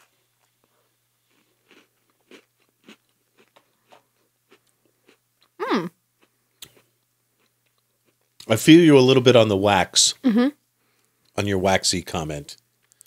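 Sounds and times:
chewing crunchy cookies: 0.0s - 5.6s, 6.2s - 8.5s
person humming: 5.6s - 6.0s.

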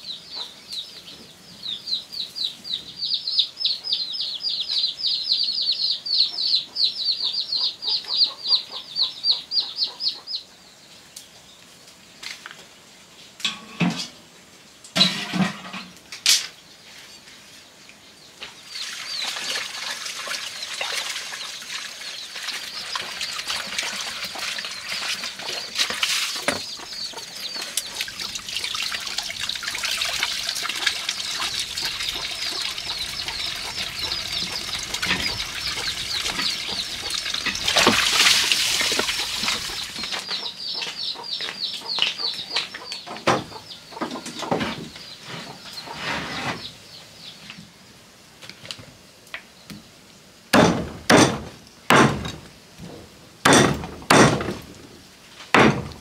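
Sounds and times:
water running and splashing: 18.6s - 40.3s.

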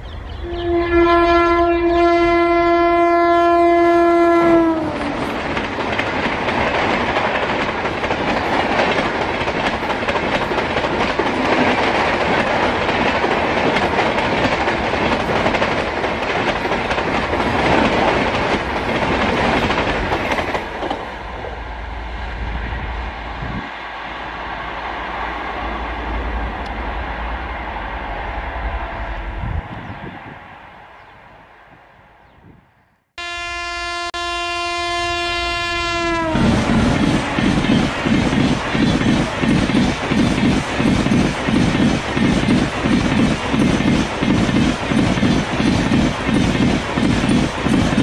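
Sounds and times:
passenger coaches rumbling past: 0.0s - 32.3s, 35.0s - 48.0s
train horn blast: 0.4s - 5.2s, 33.2s - 37.5s.

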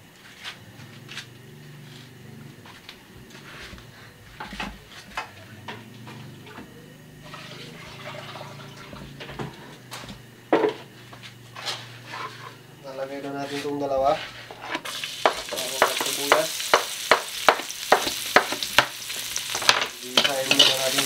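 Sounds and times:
oil crackling and popping: 14.8s - 21.0s.

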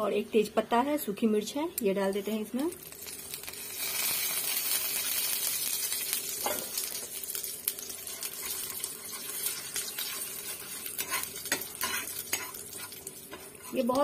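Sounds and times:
spices sizzling in hot oil: 0.3s - 14.0s
steel spoon scraping a pan: 8.1s - 14.0s.

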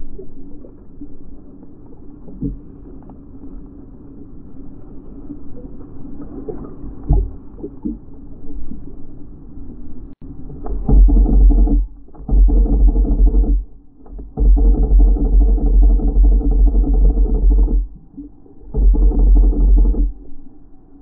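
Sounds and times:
low rumble of surf: 0.0s - 12.1s
water sloshing around camera: 0.0s - 21.0s
dull knocks: 10.6s - 18.0s, 18.7s - 20.3s.

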